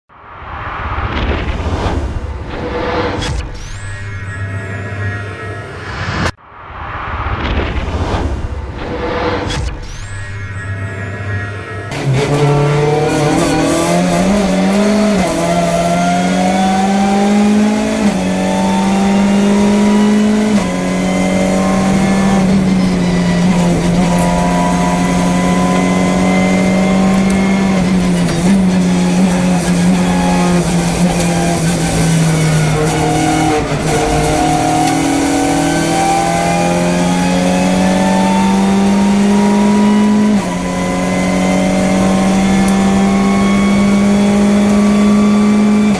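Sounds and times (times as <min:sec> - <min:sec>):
race car engine accelerating: 0:11.9 - 0:45.9.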